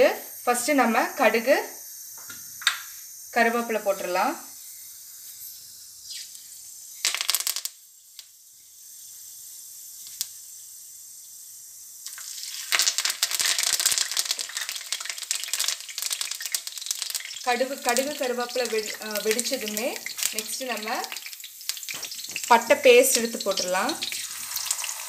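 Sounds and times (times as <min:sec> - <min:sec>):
seeds frying in hot oil: 0:00.0 - 0:05.2, 0:06.1 - 0:25.0
oil sizzling loudly: 0:02.2 - 0:25.0
oil crackling: 0:12.0 - 0:25.0.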